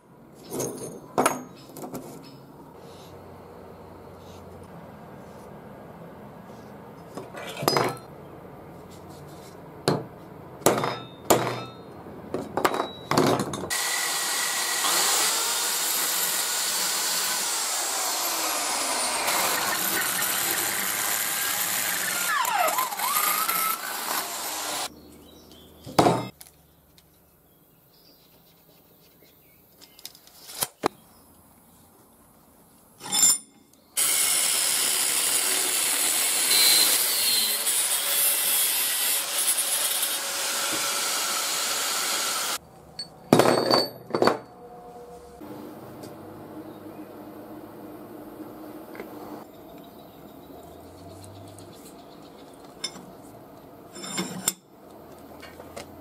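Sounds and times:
angle grinder on steel rod: 13.7s - 24.9s, 34.0s - 42.6s
electric drill boring into steel: 13.7s - 24.9s, 34.0s - 42.6s.

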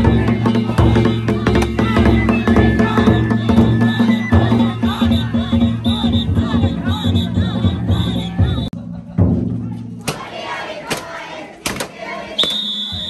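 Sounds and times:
taiko drum beating: 0.0s - 11.0s.

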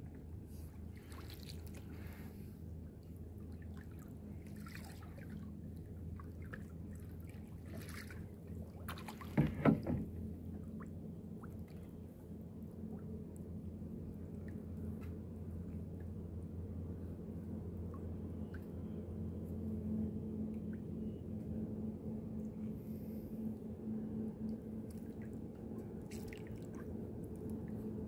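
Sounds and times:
steady low hum: 0.0s - 28.0s
paddle splashing in water: 1.0s - 2.2s, 3.7s - 5.4s, 6.2s - 10.2s.

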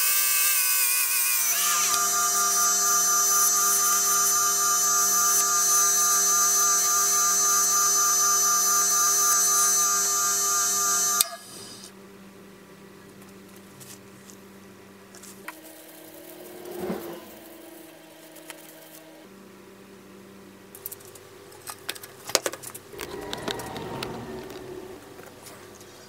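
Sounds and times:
grinder motor humming and whining: 0.0s - 11.9s
faint hum: 9.8s - 26.0s
rubbing sound: 15.6s - 18.8s.

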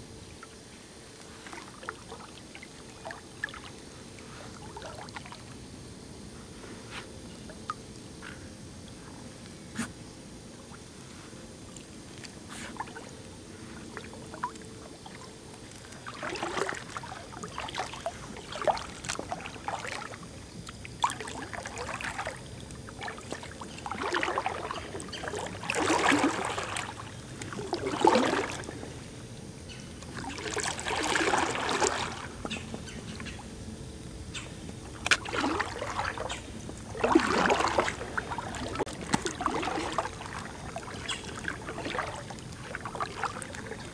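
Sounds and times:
kayak paddle splashing: 12.1s - 29.1s, 30.0s - 33.4s, 34.9s - 43.9s.

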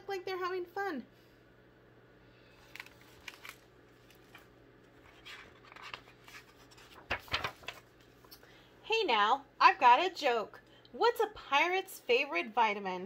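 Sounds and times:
book page rustling: 2.5s - 8.4s
louder paper rustle: 2.6s - 8.3s.

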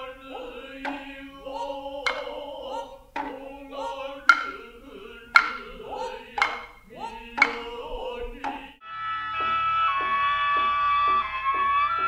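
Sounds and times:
low unison chant: 0.0s - 8.8s
hand drum strikes: 0.9s - 1.2s, 2.0s - 2.4s, 3.2s - 3.5s, 4.3s - 4.7s, 5.3s - 6.8s, 7.4s - 7.8s.

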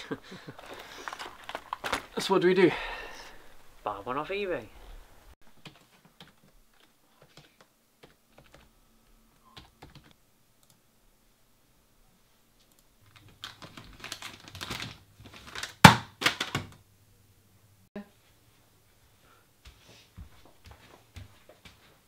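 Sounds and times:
parcel rustling through letterbox: 0.4s - 2.2s.

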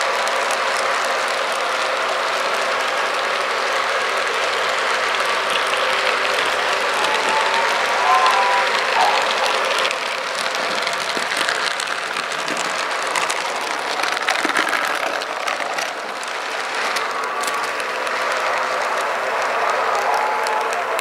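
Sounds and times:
model trains running: 0.0s - 21.0s.

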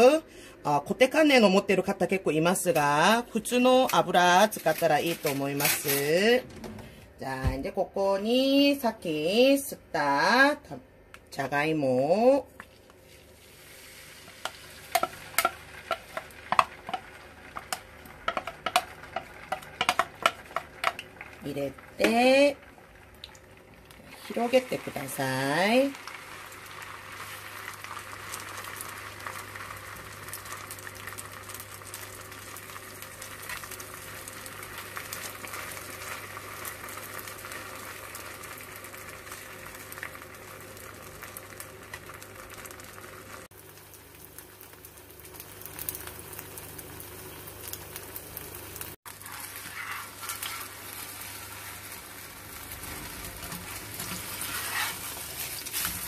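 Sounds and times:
batter sizzling in hot oil: 12.6s - 56.0s.

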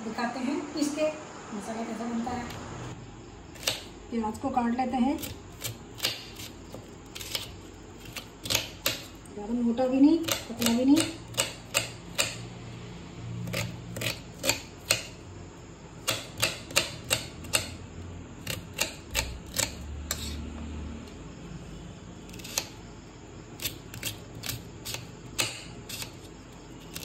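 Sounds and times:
knife chopping on cutting board: 5.2s - 9.1s, 10.2s - 12.4s, 13.5s - 15.2s, 16.0s - 17.8s, 18.5s - 20.4s, 23.6s - 26.2s.

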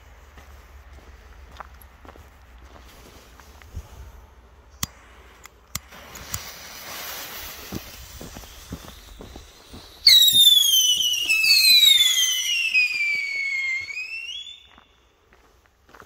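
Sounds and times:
firework charge crackling: 4.9s - 14.7s
firework whistle sliding down: 6.2s - 14.9s.

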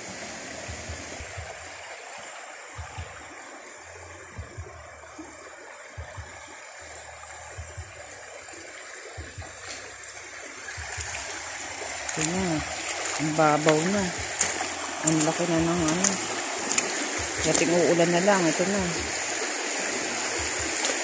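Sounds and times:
creek running over gravel: 0.0s - 21.0s
soft low thumps: 0.7s - 1.8s, 2.7s - 3.4s, 4.1s - 5.3s, 5.9s - 6.6s, 7.2s - 19.4s, 20.3s - 21.0s.

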